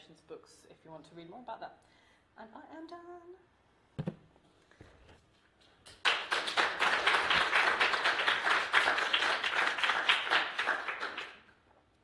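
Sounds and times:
audience applauding: 6.0s - 11.5s.

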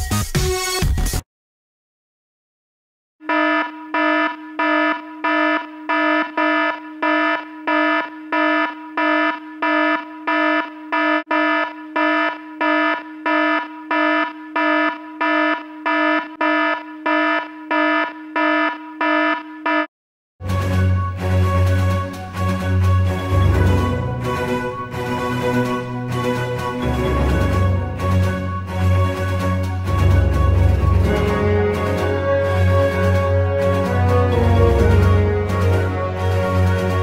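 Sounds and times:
music: 0.0s - 1.2s, 20.4s - 37.0s
electronic alarm buzzer beeping: 3.2s - 19.9s.

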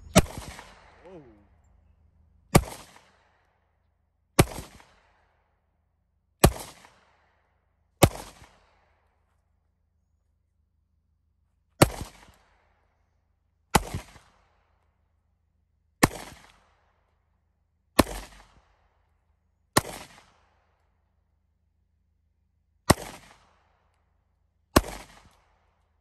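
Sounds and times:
pistol shots with echo: 0.0s - 1.4s, 2.5s - 3.5s, 4.4s - 5.3s, 6.4s - 7.3s, 8.0s - 8.8s, 13.8s - 14.4s, 16.0s - 16.7s, 18.0s - 18.7s, 19.8s - 20.5s, 22.9s - 23.6s, 24.8s - 25.6s.

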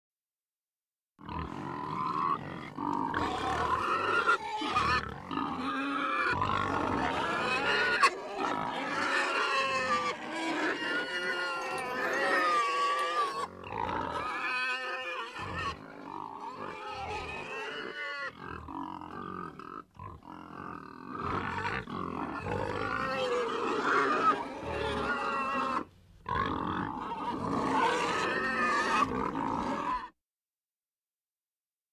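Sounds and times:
pigs grunting and squealing: 1.2s - 30.2s.

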